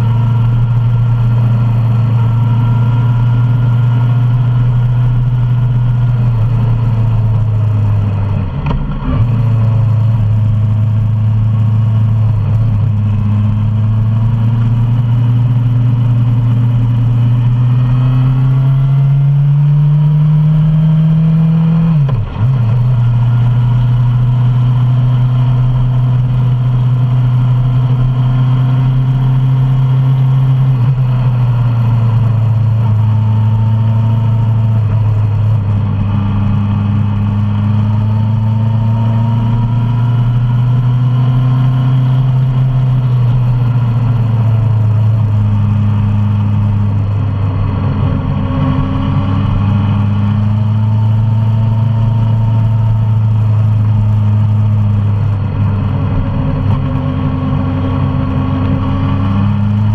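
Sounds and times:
motorcycle engine accelerating: 0:00.0 - 0:59.9.

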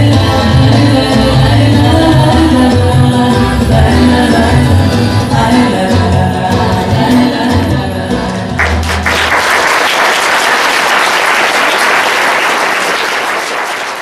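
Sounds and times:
audience applause: 0:08.6 - 0:14.0.

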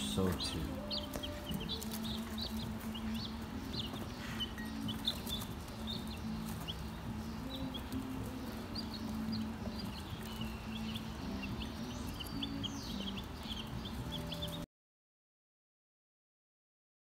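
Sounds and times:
chicks peeping: 0:00.0 - 0:14.6.

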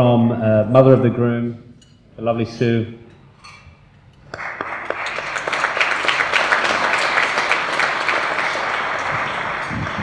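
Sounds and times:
crowd applauding: 0:04.3 - 0:10.0.

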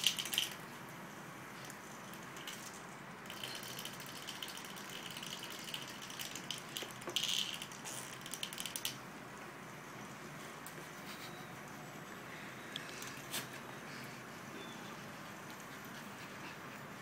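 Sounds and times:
toy gears whirring and clicking: 0:00.0 - 0:00.6, 0:01.6 - 0:09.0.

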